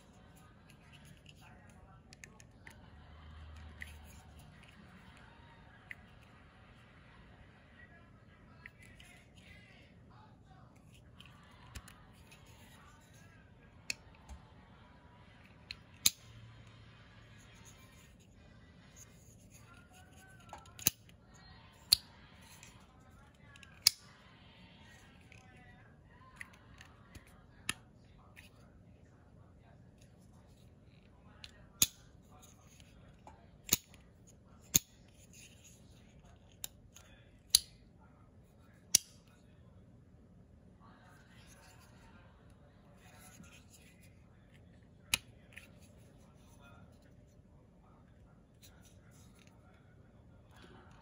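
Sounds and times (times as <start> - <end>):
knife blade metallic clicks: 16.0 - 16.3.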